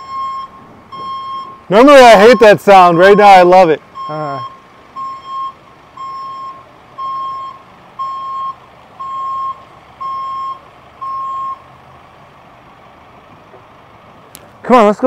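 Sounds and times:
reversing alarm beeping: 0.0s - 3.4s, 4.0s - 11.7s
van engine running: 0.0s - 15.0s.

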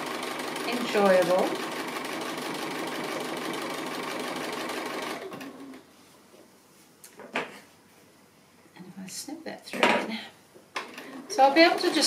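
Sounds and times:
sewing machine running: 0.0s - 5.8s.

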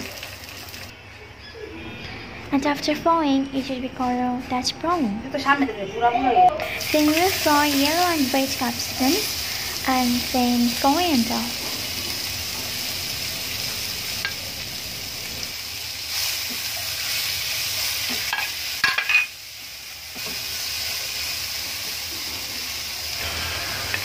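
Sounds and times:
vegetables sizzling in oil: 0.0s - 0.9s, 6.6s - 24.0s.

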